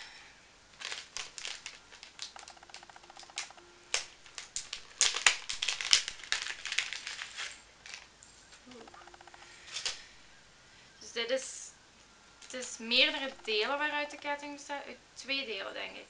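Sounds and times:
plastic bag crinkling: 0.7 - 8.7.

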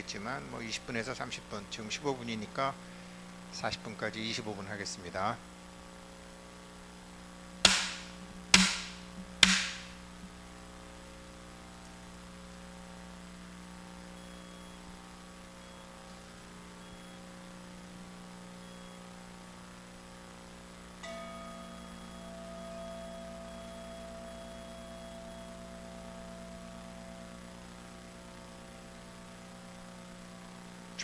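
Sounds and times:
faint steady hum: 0.0 - 31.0
bamboo stick clacks: 7.7 - 9.9.

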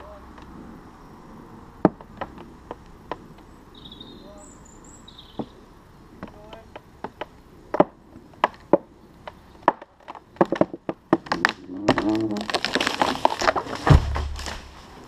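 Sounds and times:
creaking groan of splitting wood: 0.0 - 4.4, 5.2 - 15.0
tree trunk cracking: 6.2 - 15.0.

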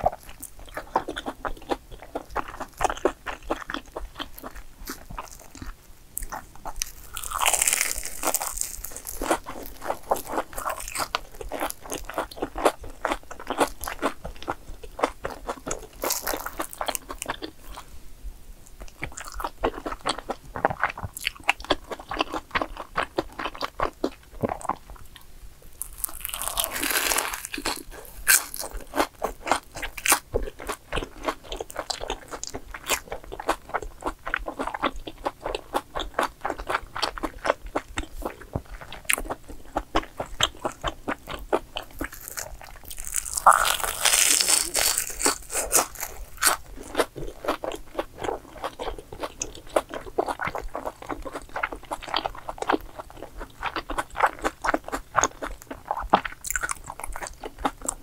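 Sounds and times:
crunchy bites and chewing: 0.0 - 17.8, 18.8 - 25.0, 25.7 - 58.0.

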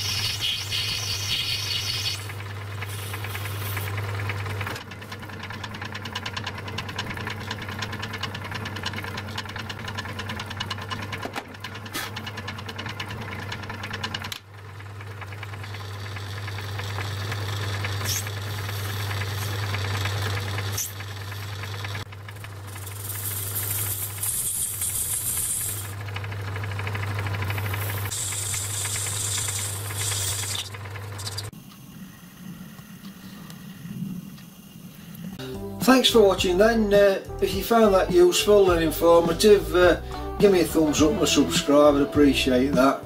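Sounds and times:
metal lathe motor hum: 0.0 - 31.6.

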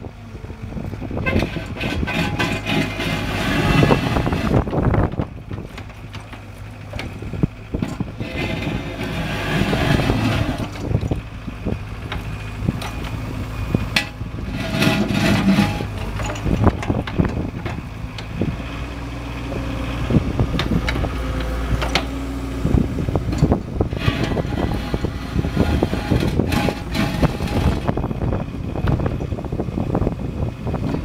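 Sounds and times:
excavator diesel engine running: 0.0 - 31.0
bucket scraping mud on concrete: 1.2 - 4.6, 8.2 - 10.9, 14.4 - 16.4, 23.9 - 28.0.

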